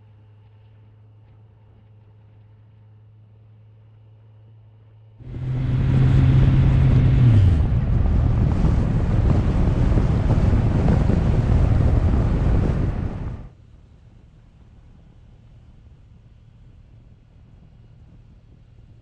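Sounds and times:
motorcycle engine hum: 5.2 - 13.5
wind buffeting microphone: 5.2 - 13.5.

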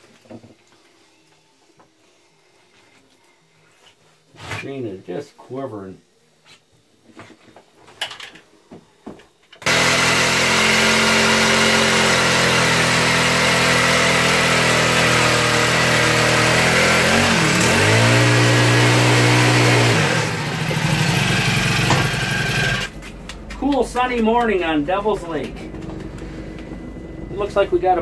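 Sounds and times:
power ice auger drilling: 9.6 - 22.9.

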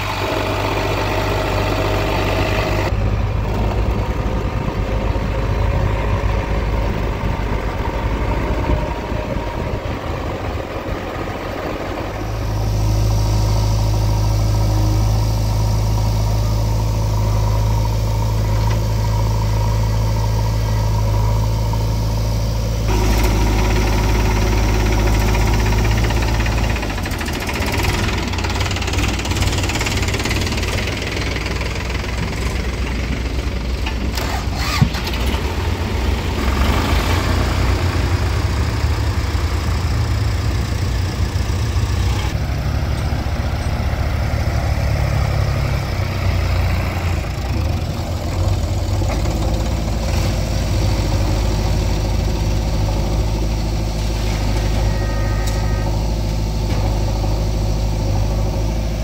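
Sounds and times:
diesel engines running: 0.0 - 59.0.

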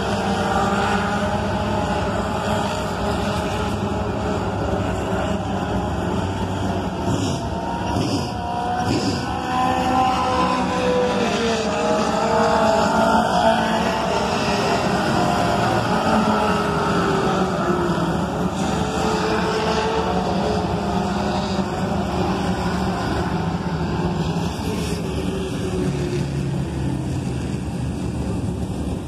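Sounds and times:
race car engines running hard: 0.0 - 29.0.

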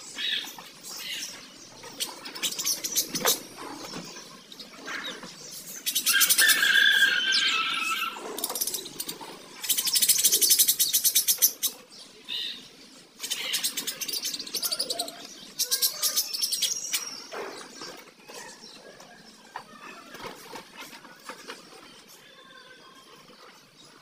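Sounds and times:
budgerigars chattering: 0.1 - 18.6.

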